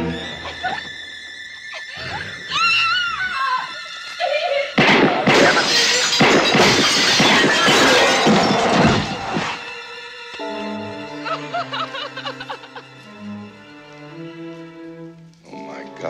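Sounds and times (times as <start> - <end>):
high wavering cry: 0.0 - 4.8
glass shattering: 4.8 - 9.6.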